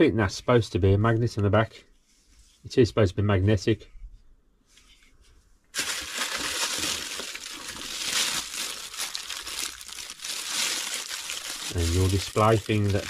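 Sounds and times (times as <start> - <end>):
plastic bags crinkling: 5.7 - 13.0.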